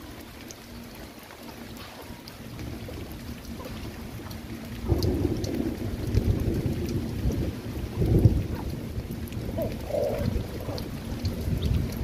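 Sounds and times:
rain: 0.0s - 12.0s
thunder rumbling: 2.5s - 12.0s.

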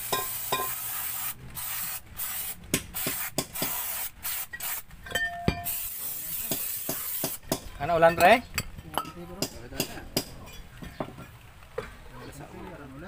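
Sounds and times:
aerosol spray bursts: 0.0s - 4.9s, 5.6s - 7.4s.

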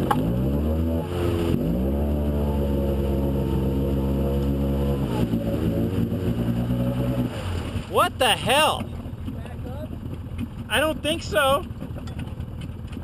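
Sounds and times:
engine revving hard: 0.0s - 8.7s.

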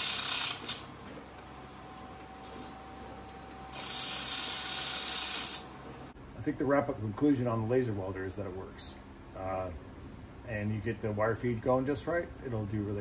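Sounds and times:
laser welder hissing: 0.0s - 0.9s, 3.7s - 5.7s.

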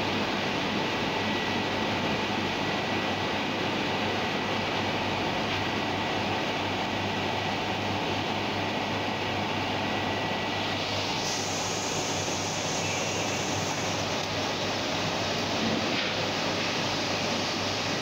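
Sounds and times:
bright hiss: 10.6s - 14.7s.

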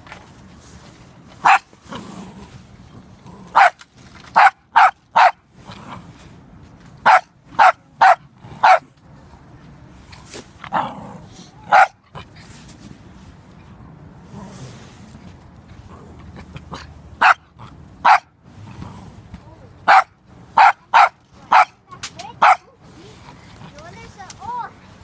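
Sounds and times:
small dog barking: 1.4s - 1.7s, 3.5s - 3.8s, 4.4s - 5.4s, 7.0s - 8.8s, 11.7s - 12.0s, 17.2s - 17.4s, 18.0s - 18.3s, 19.8s - 21.8s, 22.4s - 22.6s.

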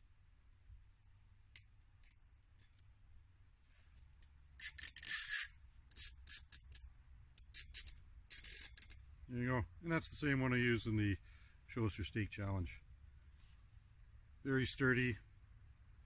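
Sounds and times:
metal wires clinking and scraping: 1.5s - 2.9s, 3.7s - 9.1s.

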